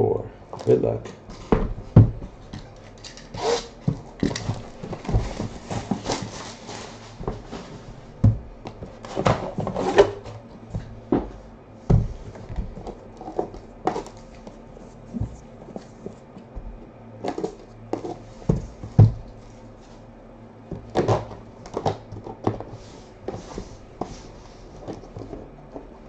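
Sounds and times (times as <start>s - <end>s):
dull knocks: 1.5s - 2.4s, 11.9s - 12.9s
cardboard rubbing and scraping: 3.3s - 8.1s.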